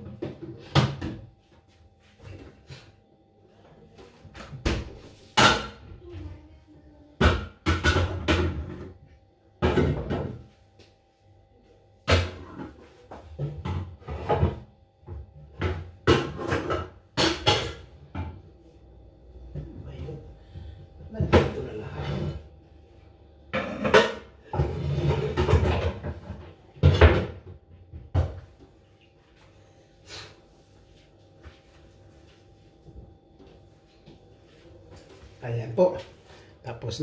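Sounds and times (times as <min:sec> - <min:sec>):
faint steady hum: 0:00.0 - 0:37.0
pots and dishes clattering: 0:07.2 - 0:09.0, 0:09.6 - 0:10.5, 0:12.1 - 0:18.4, 0:23.5 - 0:28.4.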